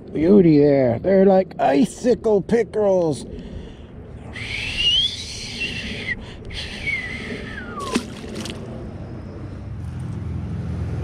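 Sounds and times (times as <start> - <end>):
falling whistle: 4.3 - 8.1
passing vehicle rumble: 6.9 - 11.0
fish splashing into water: 7.8 - 8.8.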